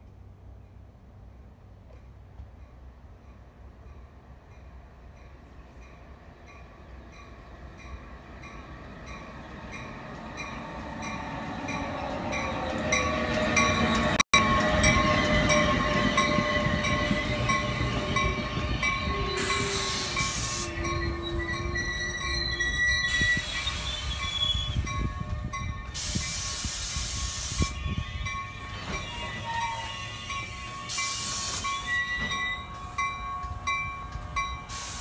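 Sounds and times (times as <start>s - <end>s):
rumble of passing train cars: 0.0s - 35.0s
locomotive bell ringing: 4.6s - 26.4s, 27.7s - 35.0s
high squealing brakes: 9.3s - 33.6s
air hiss: 19.4s - 20.9s, 25.9s - 27.8s, 30.9s - 31.9s, 34.7s - 35.0s.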